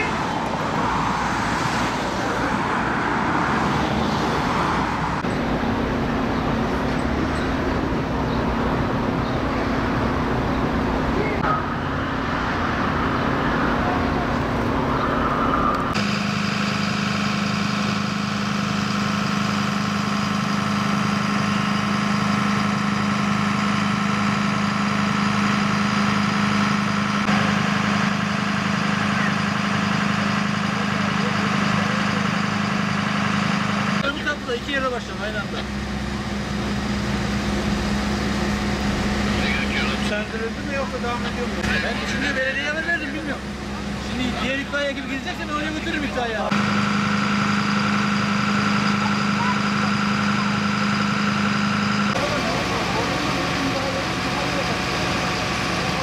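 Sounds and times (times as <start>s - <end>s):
road traffic noise: 0.0s - 56.0s
vehicle engine idling: 15.8s - 56.0s.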